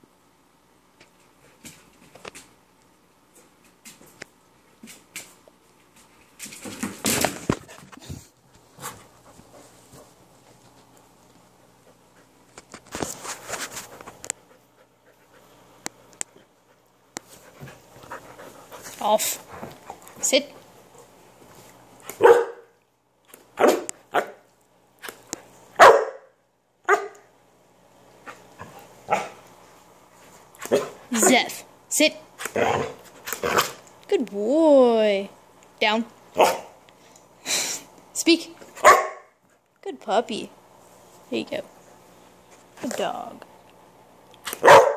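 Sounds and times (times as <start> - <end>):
dog barking: 22.2 - 22.7, 23.6 - 24.4, 25.8 - 26.3, 26.9 - 27.2, 29.1 - 29.4, 36.4 - 36.7, 38.8 - 39.3, 44.6 - 44.9.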